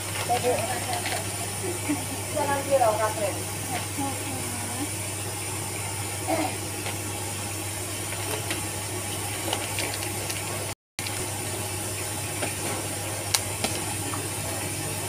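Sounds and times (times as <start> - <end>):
wrapping paper rustling: 0.0 - 1.9.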